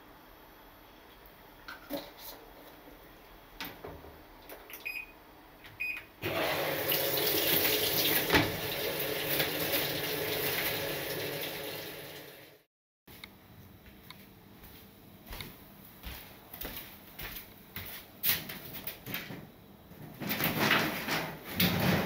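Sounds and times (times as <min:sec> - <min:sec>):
water rushing into drum: 0:06.2 - 0:12.6.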